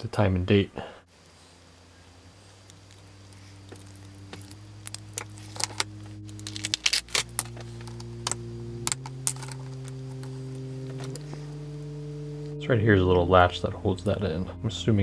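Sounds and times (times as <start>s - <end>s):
soft background music: 1.4s - 15.0s
circuit boards clicking and rattling: 4.2s - 11.3s.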